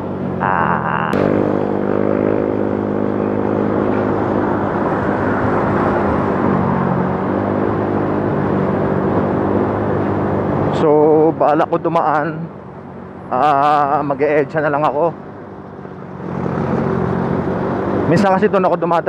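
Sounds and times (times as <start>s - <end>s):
motorcycle engine running: 0.0s - 6.2s
wind and road noise: 0.0s - 19.0s.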